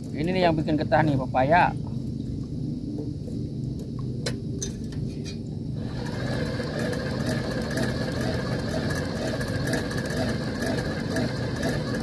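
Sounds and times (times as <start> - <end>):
high hiss and whine: 0.0 - 12.0
engine humming: 5.8 - 12.0.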